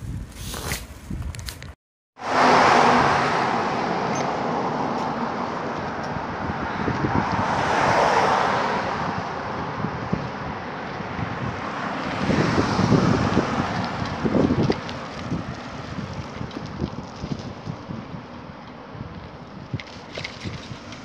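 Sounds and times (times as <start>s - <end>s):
wind on microphone: 0.0s - 21.0s
large truck passing: 2.2s - 16.3s
cars passing: 2.2s - 21.0s.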